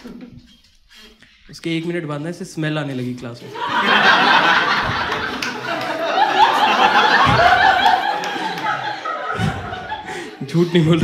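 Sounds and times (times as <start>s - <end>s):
audience laughing: 3.4s - 11.0s.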